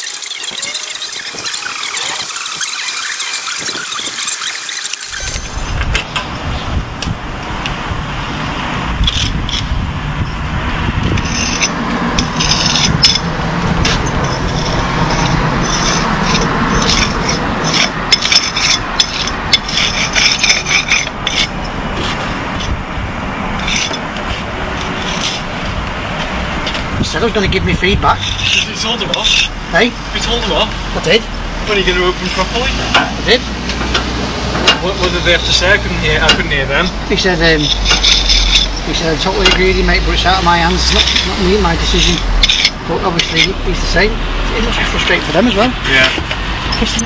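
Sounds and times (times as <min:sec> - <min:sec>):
rasping scrape on hard surface: 0:09.0 - 0:10.4, 0:11.0 - 0:22.8, 0:23.6 - 0:25.6, 0:27.8 - 0:33.5, 0:34.8 - 0:47.0
sharp clicks and knocks: 0:32.2 - 0:35.6, 0:36.2 - 0:37.0.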